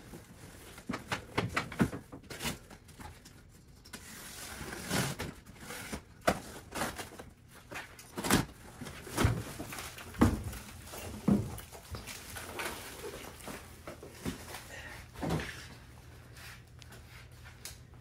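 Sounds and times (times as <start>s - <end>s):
cardboard scraping and rustling: 4.0s - 14.5s.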